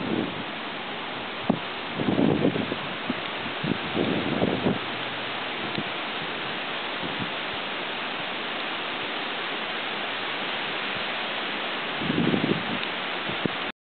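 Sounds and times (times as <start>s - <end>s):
wind gust buffeting microphone: 0.0s - 0.6s, 1.2s - 7.5s, 12.0s - 13.7s
steady rain falling: 0.0s - 13.7s.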